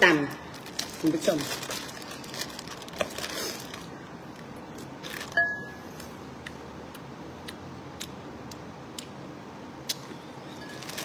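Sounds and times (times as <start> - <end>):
plastic bag crinkling: 0.5 - 4.0, 5.0 - 5.4, 10.6 - 11.0
eating clicks and smacks: 6.4 - 9.2, 9.8 - 10.1.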